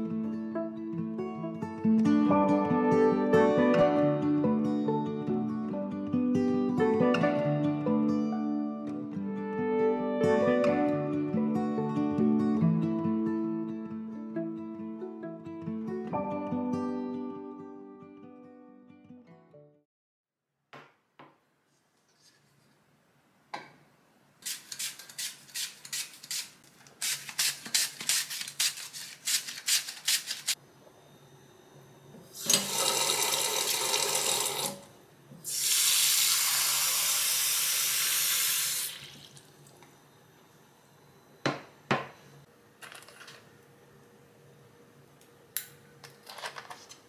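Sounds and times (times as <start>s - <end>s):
water running from tap: 32.4s - 39.5s.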